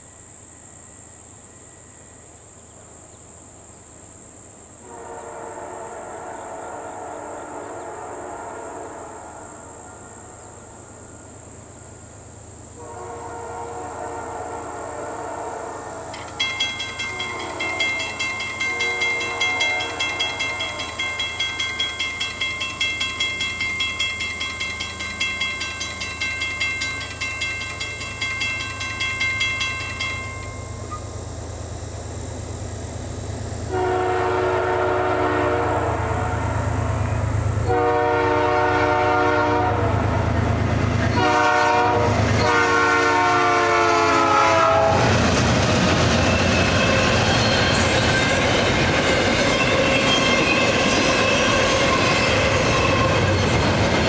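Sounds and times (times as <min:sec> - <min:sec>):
locomotive horn blasts: 0:04.8 - 0:10.4, 0:12.8 - 0:21.2, 0:33.7 - 0:37.0, 0:37.6 - 0:40.2, 0:41.1 - 0:45.1
crossing warning bell ringing: 0:16.0 - 0:31.7, 0:45.8 - 0:54.0.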